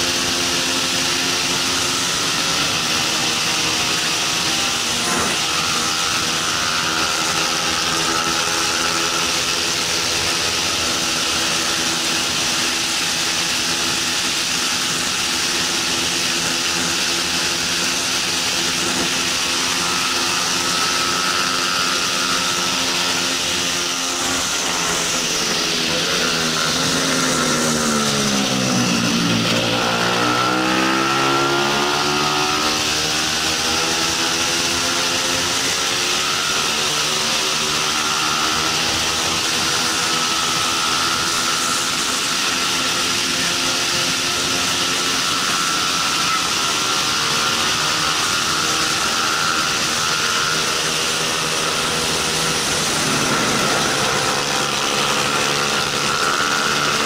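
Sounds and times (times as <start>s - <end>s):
motorcycle engine revving: 0.0s - 57.0s
wind rush: 50.7s - 56.5s.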